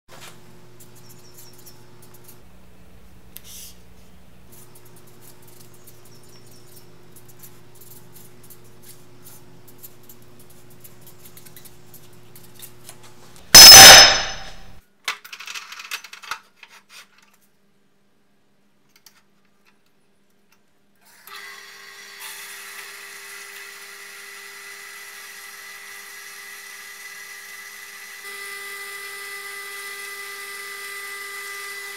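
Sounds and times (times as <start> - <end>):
loud metallic ringing crash: 13.6 - 14.8
band saw running: 21.3 - 31.9.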